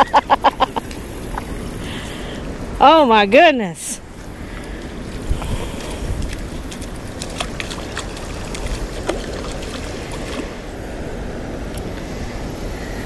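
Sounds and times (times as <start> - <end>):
steady low rumble: 3.9 - 13.0
fish splashing in water: 4.3 - 11.2.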